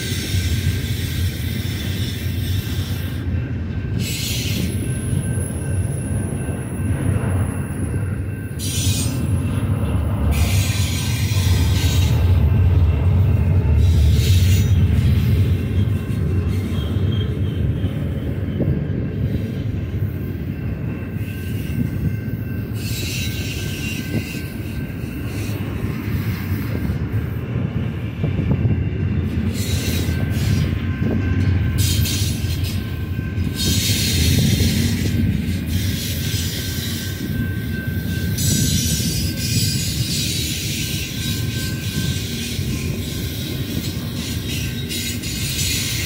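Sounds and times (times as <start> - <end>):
train wheels rumbling on rail: 0.0 - 46.0
high-pitched wheel noise: 0.2 - 27.0.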